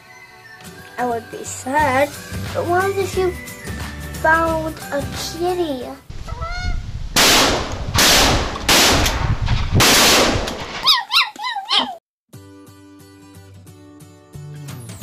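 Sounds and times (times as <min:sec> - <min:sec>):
background music: 0:00.0 - 0:06.1, 0:12.4 - 0:15.0
geese honking: 0:06.2 - 0:06.8
shotgun shots: 0:07.2 - 0:10.8.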